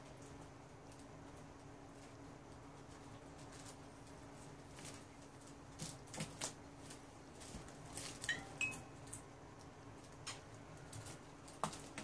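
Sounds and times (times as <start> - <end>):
plastic wrapper rustling: 2.9 - 8.4.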